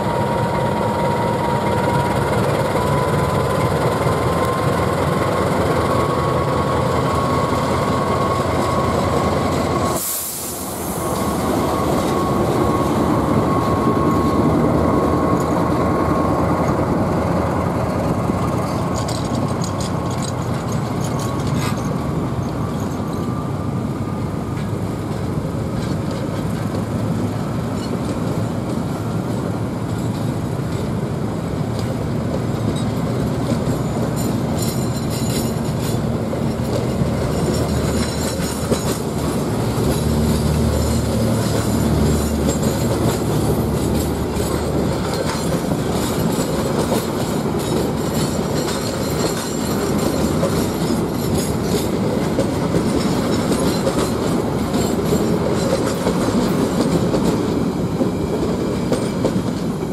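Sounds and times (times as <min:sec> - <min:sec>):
train wheels clacking: 0:00.0 - 0:23.6, 0:24.4 - 0:59.9
train wheels rumbling on rails: 0:00.0 - 0:59.9.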